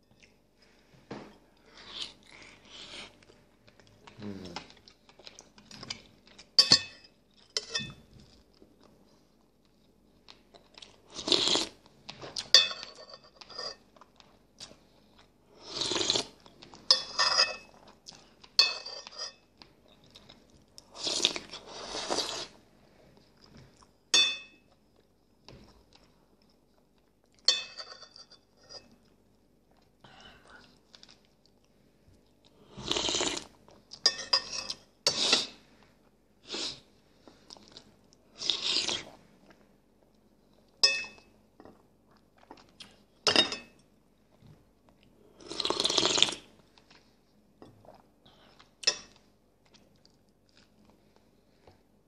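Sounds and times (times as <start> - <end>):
person chewing food: 1.4 - 6.6, 19.4 - 22.6, 28.9 - 34.0, 37.2 - 43.2, 44.3 - 52.0.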